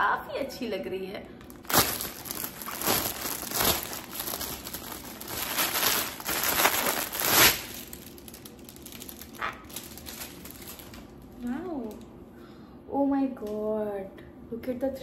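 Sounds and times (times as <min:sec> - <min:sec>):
plastic packaging crinkling: 0:01.4 - 0:12.1.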